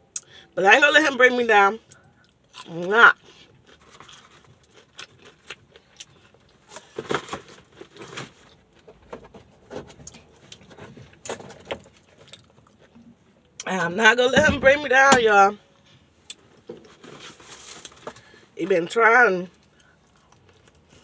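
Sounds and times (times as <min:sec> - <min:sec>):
person chewing crunchy food: 0:01.9 - 0:07.0, 0:19.6 - 0:21.0.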